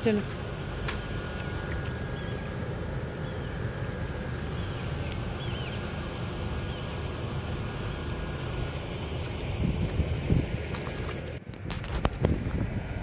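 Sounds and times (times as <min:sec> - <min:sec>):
wind buffeting microphone: 0:00.0 - 0:13.0
faint high bird chirps: 0:04.6 - 0:05.8.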